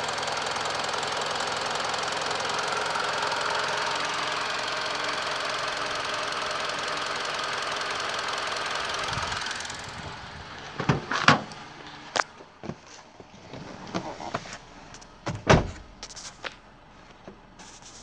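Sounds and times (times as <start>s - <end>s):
car engine idling: 0.0s - 18.0s
car door handle and latch clunks: 15.2s - 15.9s.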